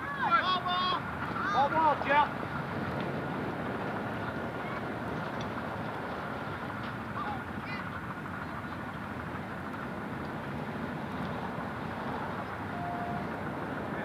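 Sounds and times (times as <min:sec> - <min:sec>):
outdoor background hiss: 0:00.0 - 0:14.0.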